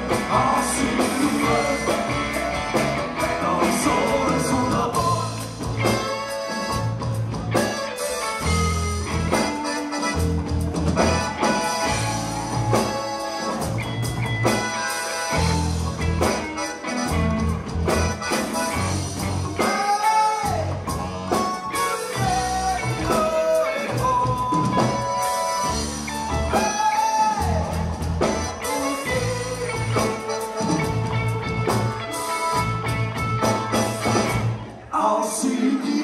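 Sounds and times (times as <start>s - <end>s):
upright double bass: 0.0s - 7.8s, 8.4s - 14.7s, 15.3s - 16.4s, 17.0s - 19.6s, 23.9s - 26.6s, 27.4s - 34.7s
drum kit beat: 0.0s - 34.6s
electric guitar: 0.0s - 35.0s
button accordion: 5.8s - 19.3s, 28.2s - 34.6s.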